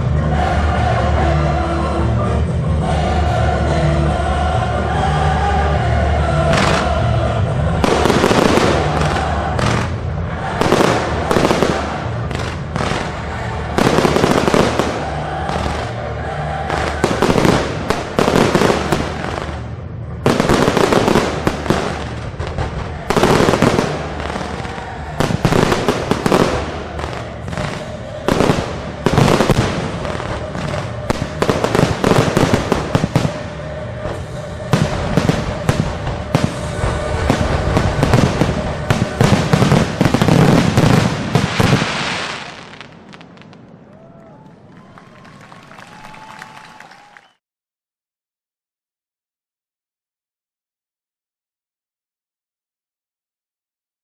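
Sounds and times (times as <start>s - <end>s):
music playing: 0.0s - 43.0s.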